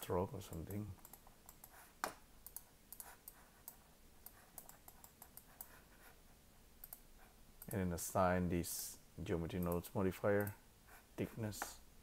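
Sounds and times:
mouse and keyboard clicks: 0:00.5 - 0:05.8.

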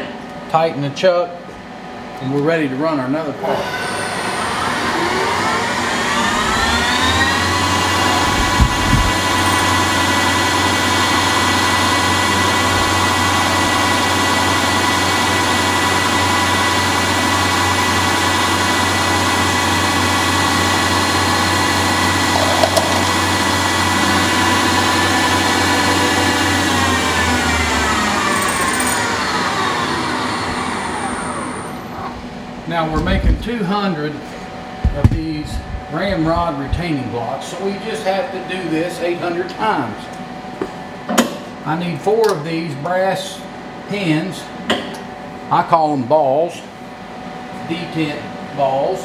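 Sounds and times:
lathe spindle whine: 0:03.4 - 0:32.5.

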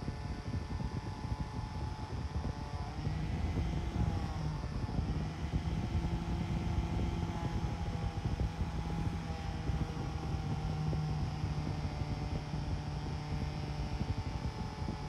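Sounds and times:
angle grinder running: 0:02.7 - 0:11.6.

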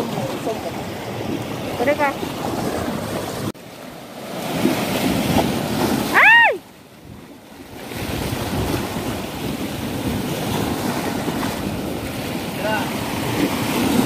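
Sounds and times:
waves washing over rocks: 0:00.0 - 0:14.0
wind buffeting microphone: 0:06.9 - 0:14.0.

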